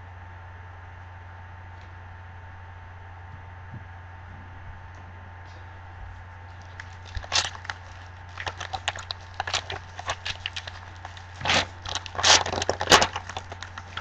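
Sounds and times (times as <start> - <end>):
foil wrapper crinkling: 6.5 - 14.0
foil wrapper ripping: 6.5 - 14.0.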